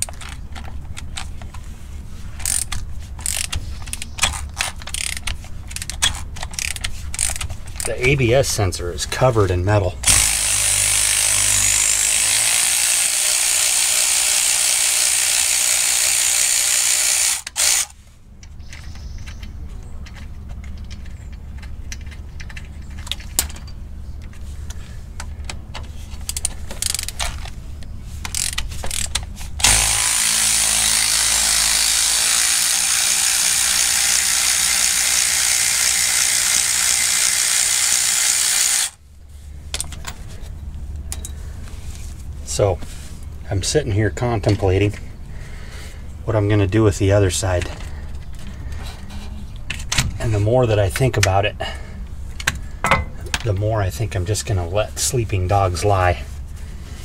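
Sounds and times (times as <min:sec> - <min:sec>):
electric ratchet running: 0:02.4 - 0:03.5, 0:04.9 - 0:05.2, 0:10.0 - 0:18.0, 0:28.3 - 0:39.0.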